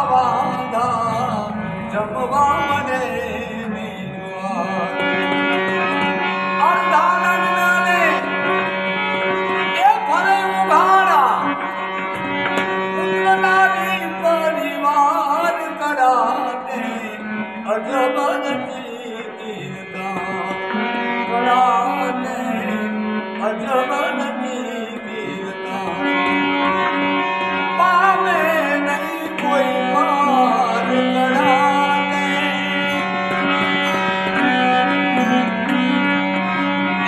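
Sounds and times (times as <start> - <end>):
man singing ornamented phrases: 0.0 - 5.0, 13.0 - 20.7, 21.3 - 26.1, 27.8 - 33.0
harmonium drone and melody: 0.0 - 37.0.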